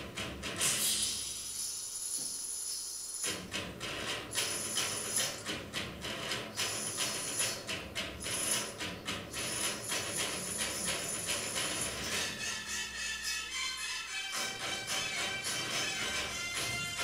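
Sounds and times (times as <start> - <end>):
shaken percussion with jingles: 6.6 - 12.4.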